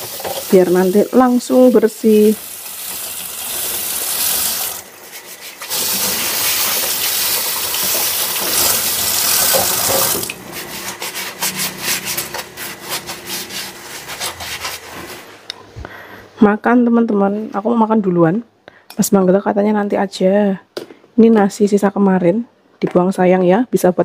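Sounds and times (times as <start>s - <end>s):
tap water running onto dishes: 0.0s - 4.9s, 5.6s - 10.4s
dishes scrubbing and clattering: 5.1s - 15.2s.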